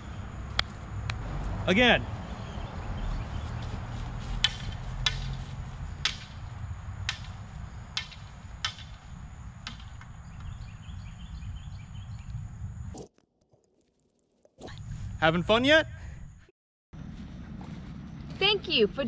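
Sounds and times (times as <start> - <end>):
wind rumble on microphone: 0.0 - 13.0, 14.7 - 16.4
stick tapping wooden hoop: 4.3 - 6.4, 7.0 - 9.0.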